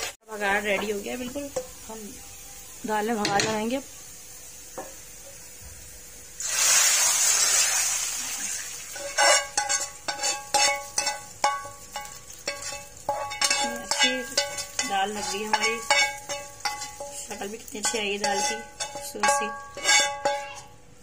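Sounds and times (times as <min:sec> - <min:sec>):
hot oil sizzling: 0:00.0 - 0:21.0
spoon scraping metal wok: 0:08.9 - 0:20.8.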